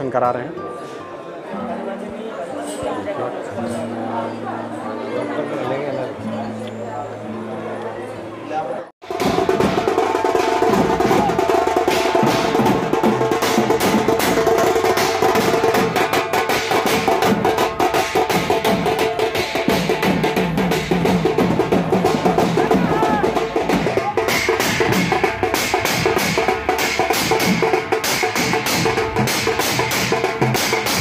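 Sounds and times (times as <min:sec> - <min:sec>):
barrel drums beaten fast: 0:09.0 - 0:31.0.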